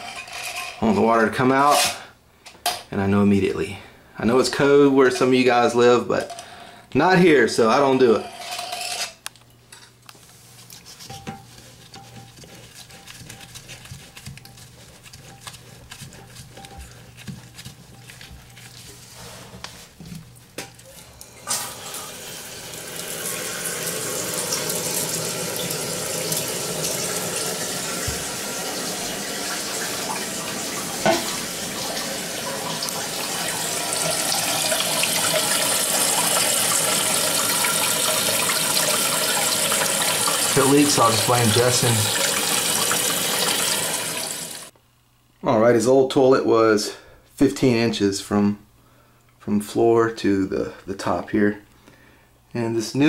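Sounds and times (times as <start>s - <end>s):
toilet tank filling with water: 21.4s - 44.7s.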